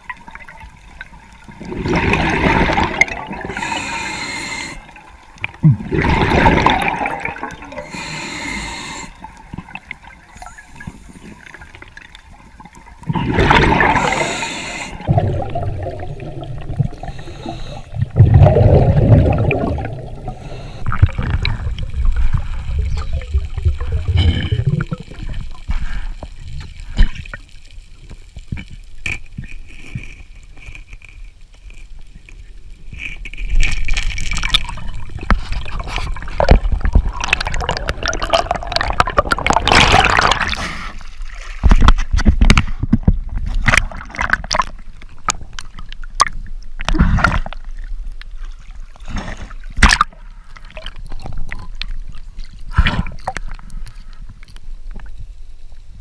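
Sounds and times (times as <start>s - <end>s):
water gurgling underwater: 0.0s - 3.8s, 5.4s - 7.9s, 11.4s - 17.2s, 17.9s - 25.8s, 34.2s - 40.7s.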